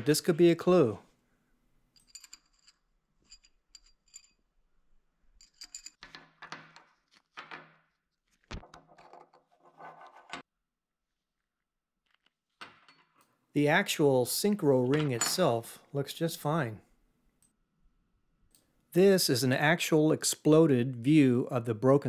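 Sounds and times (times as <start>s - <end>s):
small metal parts clinking: 1.9s - 6.2s.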